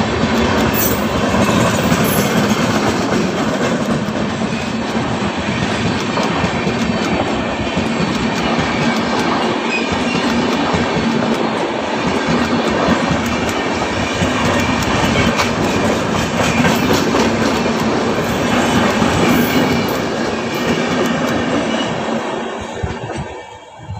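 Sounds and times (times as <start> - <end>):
clickety-clack over rail joints: 0.0 - 23.9
train wheels rushing on rails: 0.0 - 23.9.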